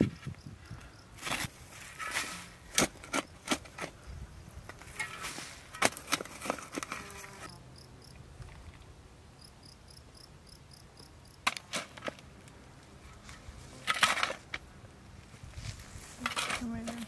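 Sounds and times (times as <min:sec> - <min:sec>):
hoe chopping into soil: 0:01.2 - 0:03.9.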